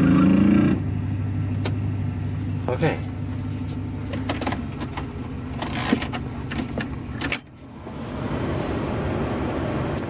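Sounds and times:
pickup engine idling: 0.8s - 10.0s.

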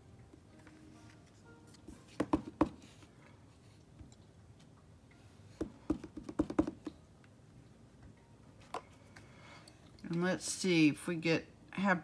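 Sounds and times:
stamp block tapping: 5.6s - 6.9s.

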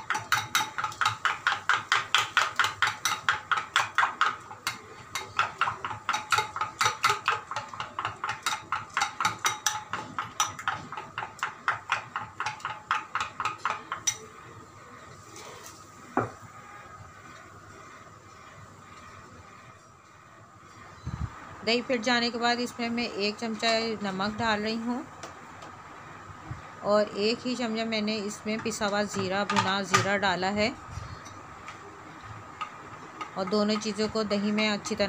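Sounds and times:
spoon beating yogurt in bowl: 0.0s - 14.4s.

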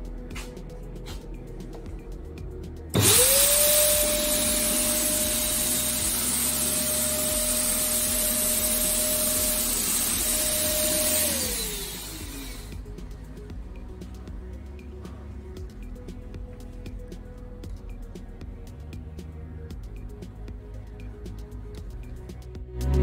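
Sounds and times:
background music: 0.0s - 23.0s
fogger motor whine and hiss: 3.0s - 13.4s.

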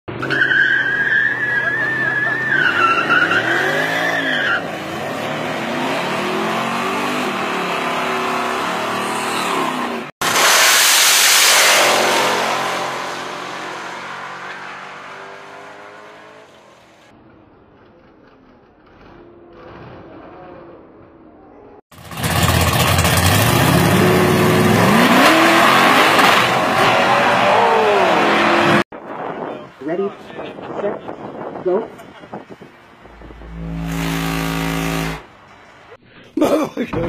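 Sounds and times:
car tyres squealing: 0.1s - 6.0s, 32.3s - 35.9s
drag cars racing: 0.1s - 29.4s, 30.2s - 36.0s
car engine revving: 4.7s - 16.9s, 22.0s - 28.9s, 32.8s - 36.0s.

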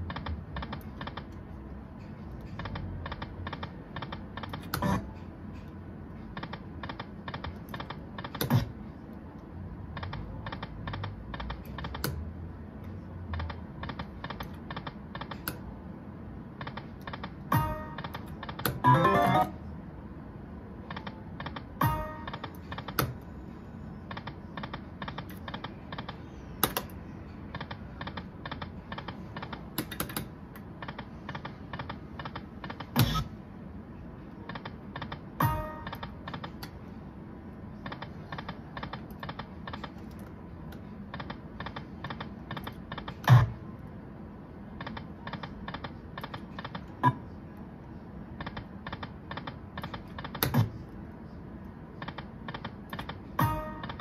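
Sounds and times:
slot machine reels clicking: 16.7s - 19.6s, 20.9s - 23.2s, 52.0s - 54.0s
slot machine knock: 17.5s - 19.6s, 35.4s - 36.2s.

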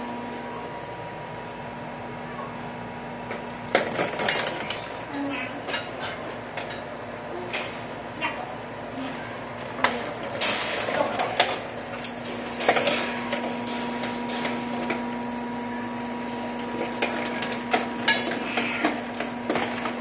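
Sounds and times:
steady low hum: 0.0s - 20.0s
plastic ball clattering in wire cage: 3.6s - 6.9s, 9.5s - 15.3s, 16.2s - 20.0s.

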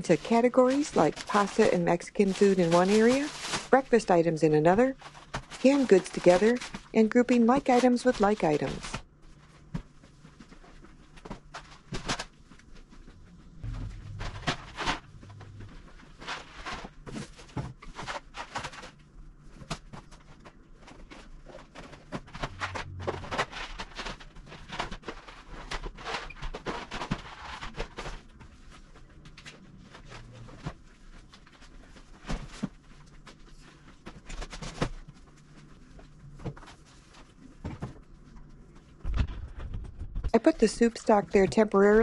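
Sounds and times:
plastic bags crinkling: 0.0s - 4.2s
cardboard boxes set on shelves: 0.0s - 39.2s, 39.8s - 42.0s.

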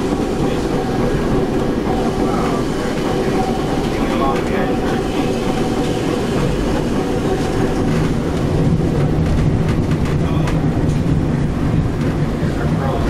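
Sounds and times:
rail joint clicks: 0.0s - 13.0s
wheels clattering on rails: 0.0s - 13.0s.

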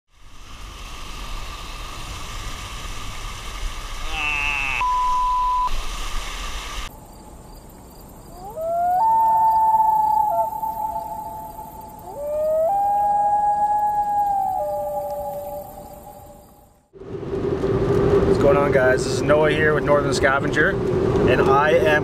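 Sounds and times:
howling animal call: 4.0s - 5.0s, 8.3s - 16.8s
steady tone: 4.1s - 5.9s.

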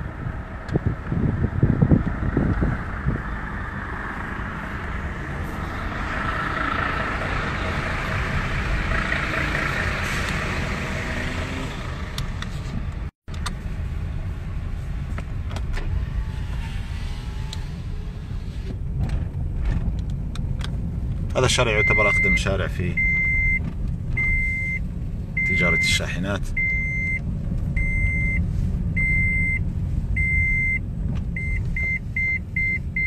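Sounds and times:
car engine and road noise: 0.0s - 33.0s.

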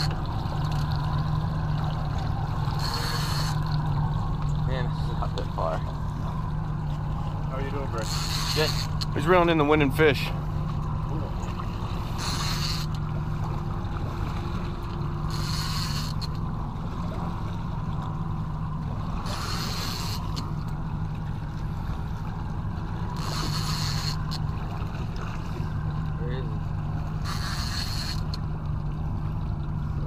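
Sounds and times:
boat engine idling: 0.0s - 30.0s.

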